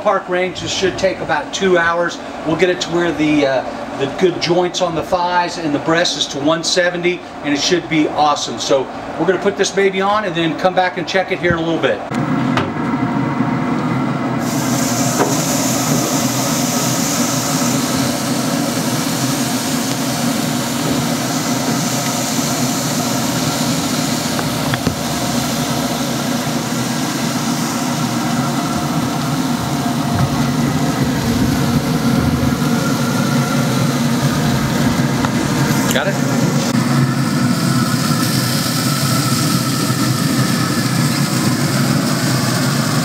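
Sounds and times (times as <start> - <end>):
mechanical drone with rumble: 12.0 - 43.0
hiss: 14.4 - 43.0.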